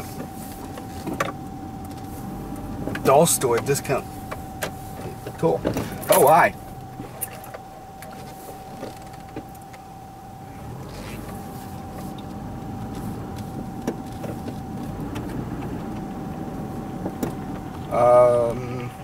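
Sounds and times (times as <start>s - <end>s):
car engine and road noise: 0.0s - 19.0s
steady high whine: 0.0s - 19.0s.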